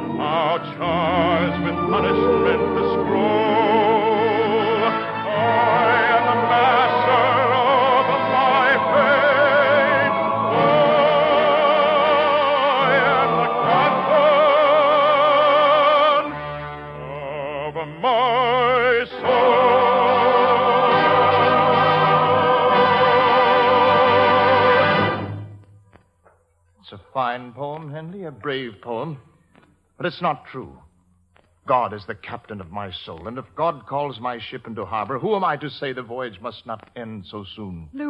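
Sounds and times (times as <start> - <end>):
lush orchestral music: 0.0 - 17.6, 18.7 - 25.6.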